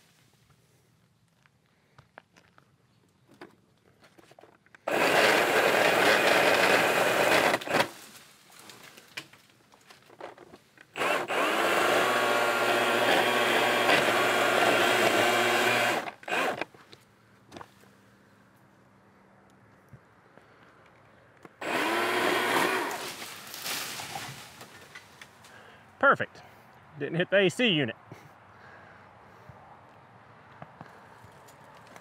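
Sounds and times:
pole saw cutting wood: 4.9s - 7.9s, 10.9s - 16.7s, 21.6s - 24.4s.

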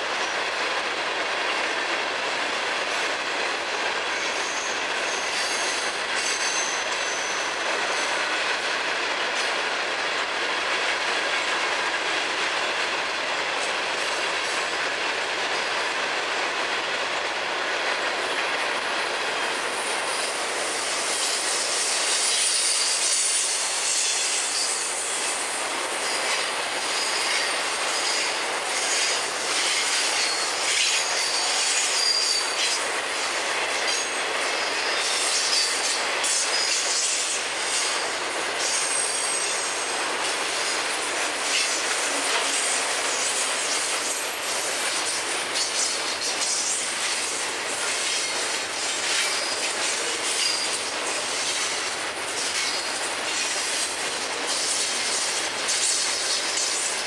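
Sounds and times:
train wheels running on rails: 0.0s - 57.0s
high-pitched wheel squeal: 4.2s - 8.3s, 28.9s - 32.8s, 38.6s - 39.9s
clacking over rail joints: 23.9s - 57.0s.

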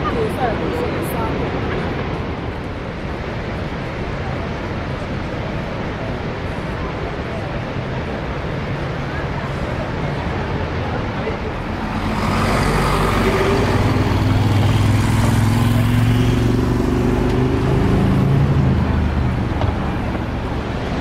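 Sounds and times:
steady background rush: 0.0s - 21.0s
heavy vehicle engine passing: 11.3s - 21.0s.

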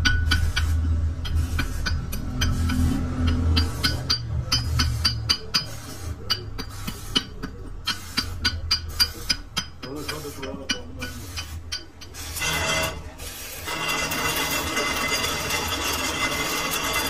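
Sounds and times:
hammer tapping metal: 0.0s - 13.1s.

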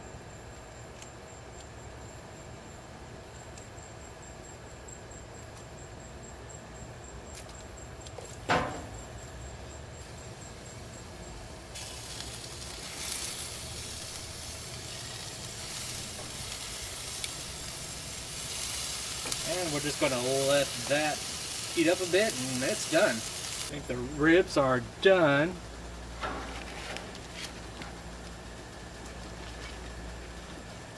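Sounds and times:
loud knock: 8.5s - 9.0s
ribs sizzling on a grill: 10.0s - 28.5s.

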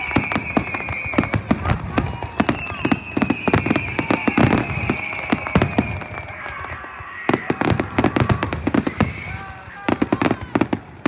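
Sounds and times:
high falling whistle: 0.0s - 6.3s
fireworks bangs and cracks: 0.0s - 11.0s.

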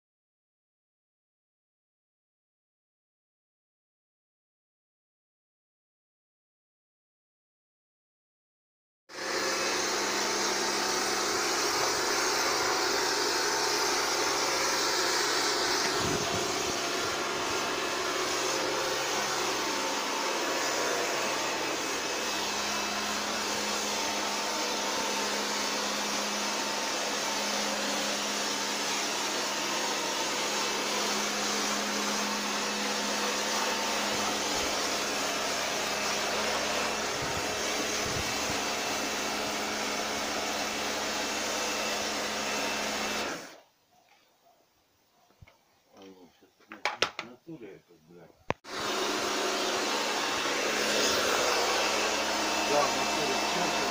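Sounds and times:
pump motor humming: 9.2s - 43.6s, 48.7s - 53.9s
water jet spraying: 9.3s - 43.5s, 48.9s - 53.9s.

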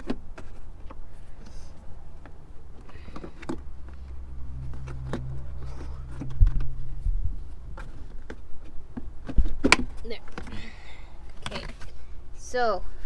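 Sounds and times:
steady low hum: 0.3s - 13.0s
low rumble: 1.5s - 8.6s.

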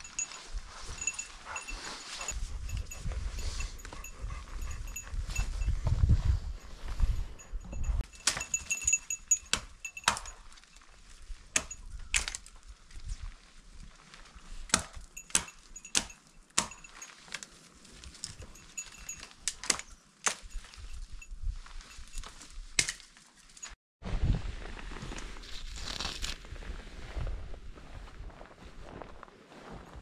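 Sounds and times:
dry branches snapping: 11.6s - 12.6s.

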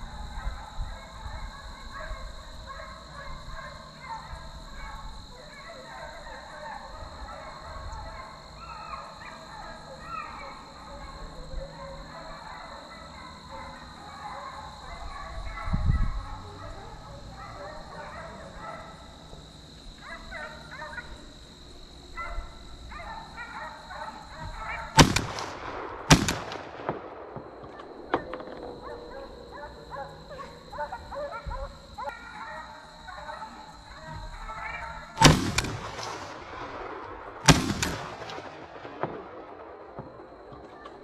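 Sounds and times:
hounds baying: 0.0s - 41.0s
shotgun shots echoing: 24.5s - 29.0s, 35.2s - 40.8s.

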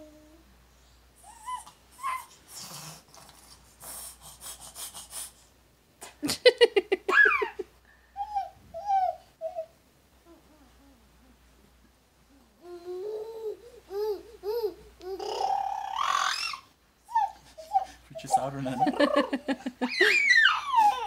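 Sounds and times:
child giggling and laughing: 6.2s - 8.4s, 18.7s - 21.0s
child babbling: 12.6s - 17.9s.

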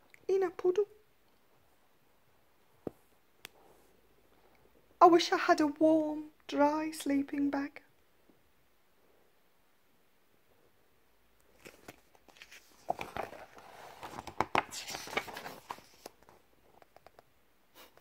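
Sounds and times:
paper page turning: 11.5s - 16.4s.

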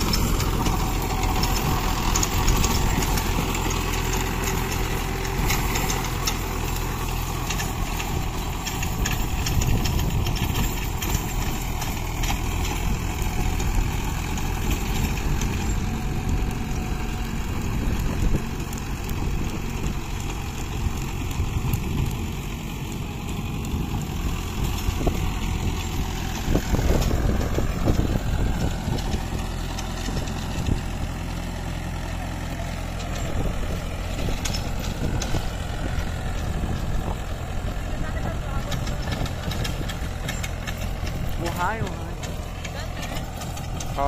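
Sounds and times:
knocks and clatters: 0.0s - 15.8s, 38.0s - 44.0s
tractor diesel engine under load: 0.0s - 44.0s.

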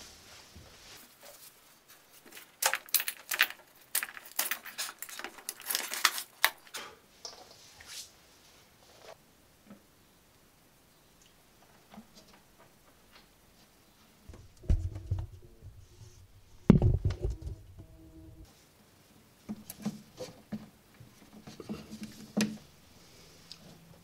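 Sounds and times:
heavy thumps: 14.3s - 18.4s.

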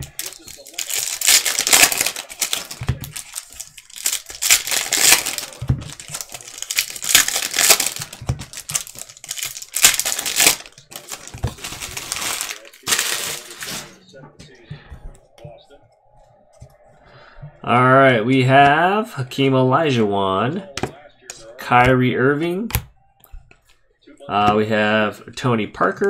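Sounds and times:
foil wrappers crinkling and tearing: 0.0s - 14.0s.

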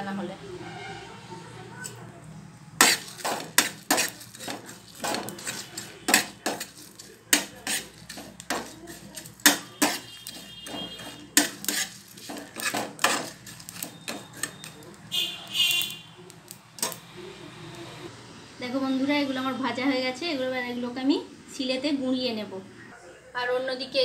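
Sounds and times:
spatula scraping metal pan: 2.8s - 14.9s.

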